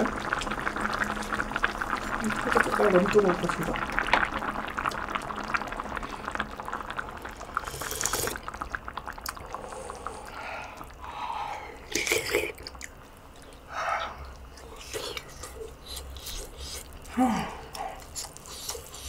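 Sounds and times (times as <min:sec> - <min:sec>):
person sipping noisily: 0:07.5 - 0:08.6, 0:09.2 - 0:19.0.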